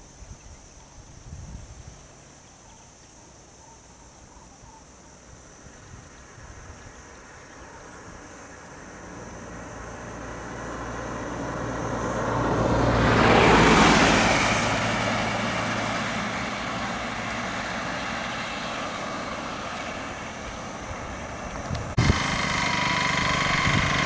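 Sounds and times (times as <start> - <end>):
low engine hum: 5.1 - 24.0
vehicle driving past: 7.2 - 24.0.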